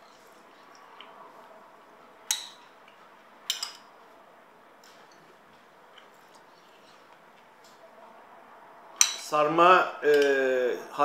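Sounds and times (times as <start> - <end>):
faint room hum: 0.0 - 11.0
cutlery clinking against dish: 2.3 - 2.7, 3.5 - 3.9, 9.0 - 9.3.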